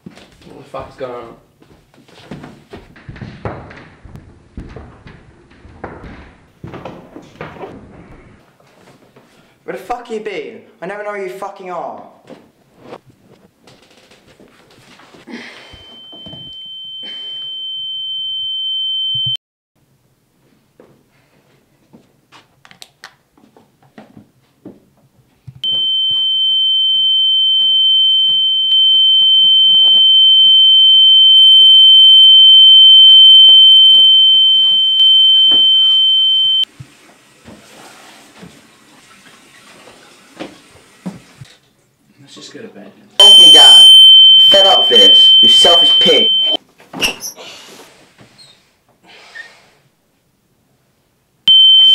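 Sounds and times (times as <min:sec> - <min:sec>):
faint knocks and shuffles: 0:00.0 - 0:09.6, 0:12.0 - 0:16.5
high-pitched ringing tone: 0:15.7 - 0:19.4, 0:25.6 - 0:36.7, 0:43.2 - 0:46.6, 0:51.5 - 0:51.9.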